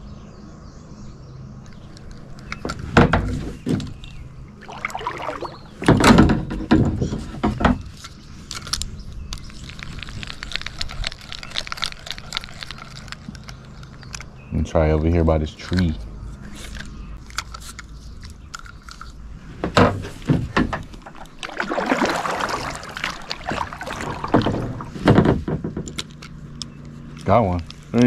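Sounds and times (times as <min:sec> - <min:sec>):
gear knocking in plastic kayak: 0:20.4 - 0:26.0.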